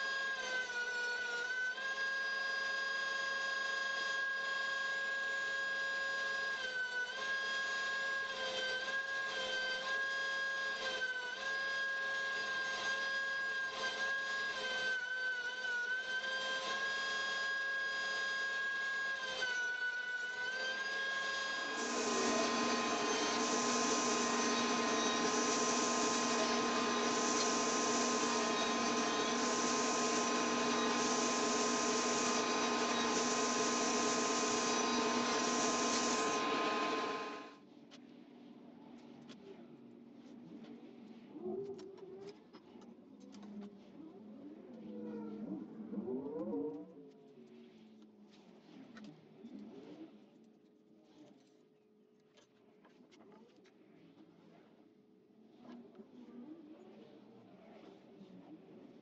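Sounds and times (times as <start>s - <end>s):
thickness planer motor whine: 16.6s - 37.5s
shop vacuum running: 21.2s - 37.6s
table saw blade spinning: 21.4s - 37.5s.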